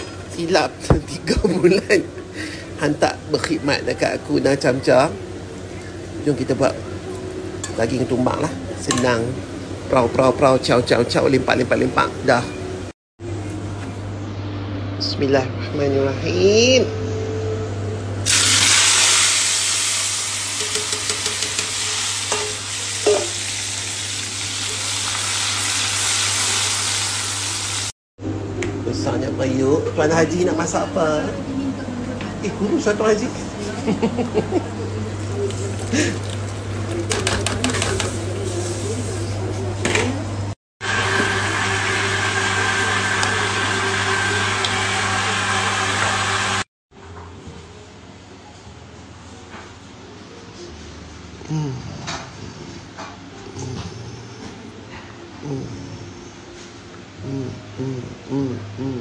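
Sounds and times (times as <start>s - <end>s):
paste sizzling in hot oil: 18.3s - 27.9s.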